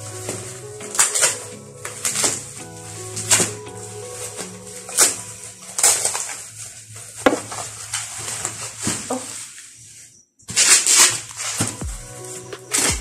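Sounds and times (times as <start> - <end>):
plastic packaging crinkling: 0.2 - 9.7.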